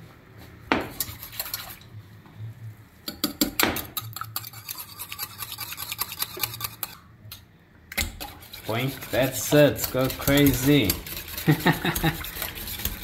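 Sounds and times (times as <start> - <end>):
whisk beating eggs in bowl: 0.9 - 1.8, 3.2 - 7.0, 8.0 - 13.0.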